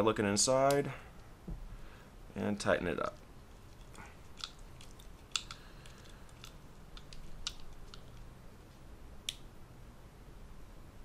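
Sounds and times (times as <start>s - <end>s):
hex key metallic clicks: 3.8s - 8.3s.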